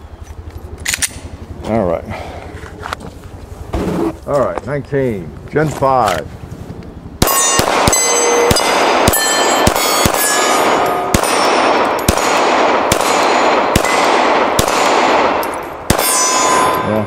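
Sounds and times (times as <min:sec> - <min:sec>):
steel targets clanging: 0:07.2 - 0:12.1, 0:15.3 - 0:17.0
pistol shots: 0:07.2 - 0:17.0.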